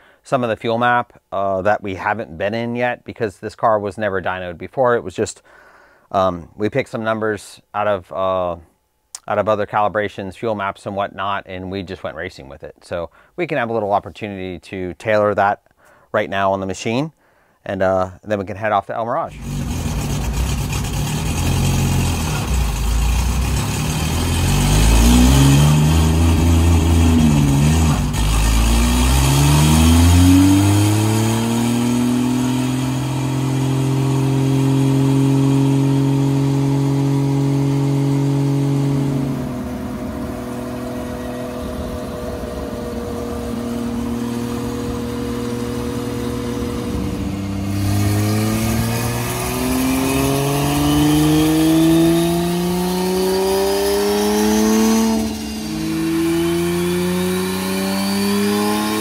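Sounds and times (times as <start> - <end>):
car engine revving: 19.3 - 59.0.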